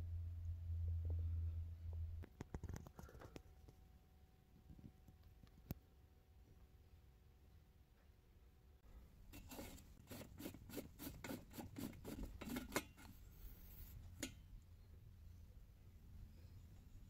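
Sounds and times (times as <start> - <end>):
brass threads scraping: 9.3 - 14.5.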